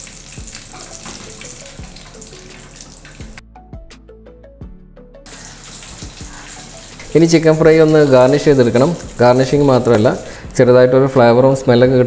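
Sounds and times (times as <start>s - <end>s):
hot oil sizzling in pan: 0.0s - 3.4s, 5.3s - 10.6s
light background music: 0.0s - 12.0s.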